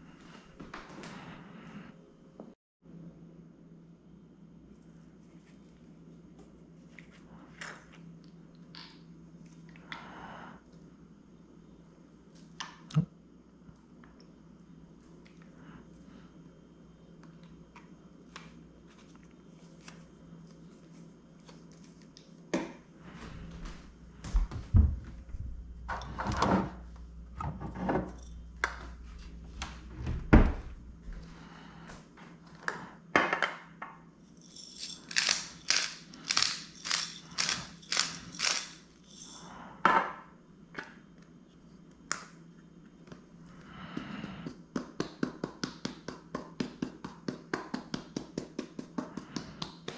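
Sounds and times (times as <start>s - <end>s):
pepper grinder grinding: 34.4s - 39.5s.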